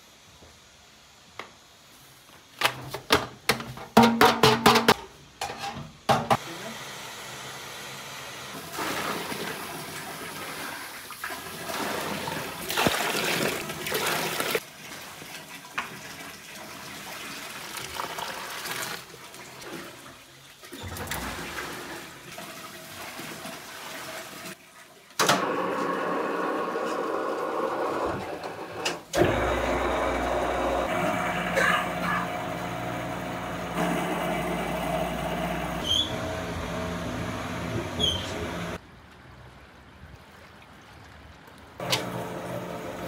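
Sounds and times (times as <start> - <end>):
water gushing into bowl: 8.7 - 20.2
dough mixer machine running: 29.2 - 38.8, 41.9 - 43.0.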